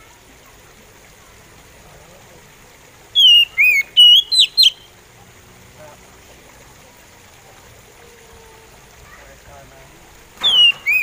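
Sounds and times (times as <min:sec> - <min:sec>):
bird singing whistled notes: 0:03.2 - 0:04.9, 0:10.4 - 0:11.0.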